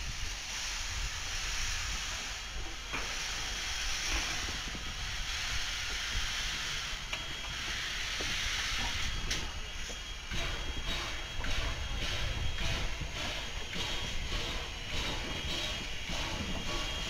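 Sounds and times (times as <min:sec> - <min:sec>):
steam locomotive hissing steam: 0:00.0 - 0:17.0.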